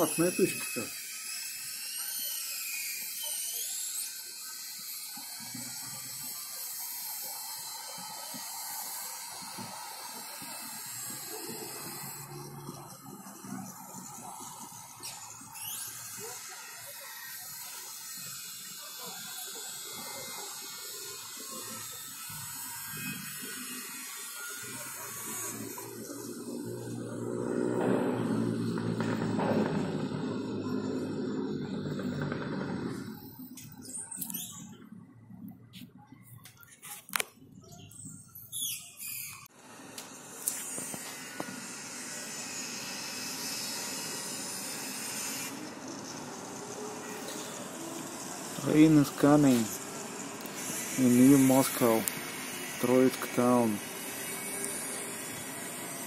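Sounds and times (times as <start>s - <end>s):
distant city sound: 5.7s - 56.0s
clicks and short squeaks: 33.6s - 34.8s.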